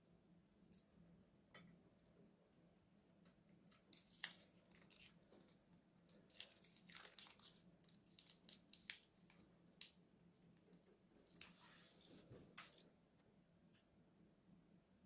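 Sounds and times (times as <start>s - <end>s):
plastic bag crinkling: 3.9s - 9.9s.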